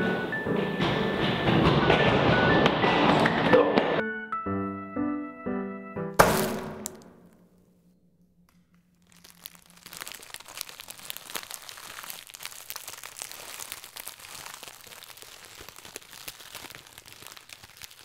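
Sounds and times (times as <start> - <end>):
chip bag crinkling and crunching: 8.8 - 18.0.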